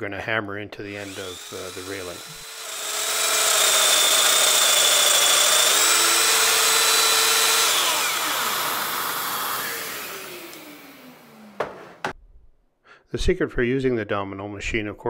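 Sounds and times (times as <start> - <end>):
motor winding down: 1.0 - 11.6
dust extractor running: 1.0 - 12.0
power joiner cutting wood: 1.0 - 12.2.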